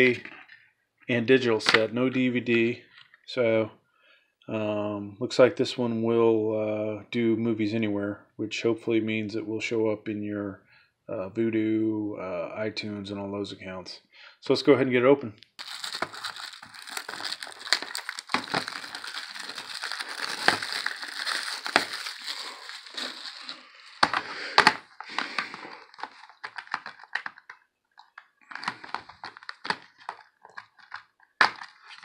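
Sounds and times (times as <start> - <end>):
plastic wrap crinkling and tearing: 15.6 - 32.0.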